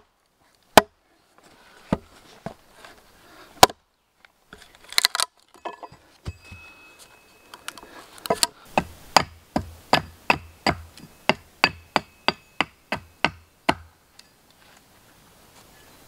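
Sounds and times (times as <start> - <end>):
hand tool striking wooden post: 8.3 - 13.9.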